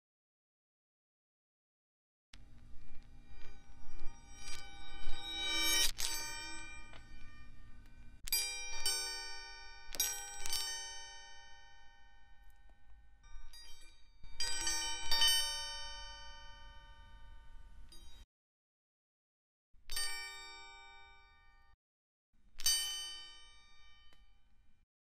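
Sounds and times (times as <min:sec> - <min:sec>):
bell-like struck notes: 0:02.4 - 0:12.5, 0:13.2 - 0:18.2.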